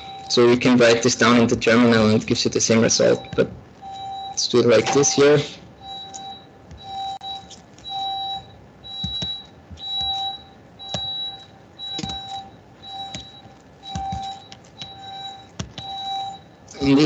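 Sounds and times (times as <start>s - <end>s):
two-pitch electronic beep: 2.9s - 17.0s
keyboard clicks: 12.0s - 12.3s.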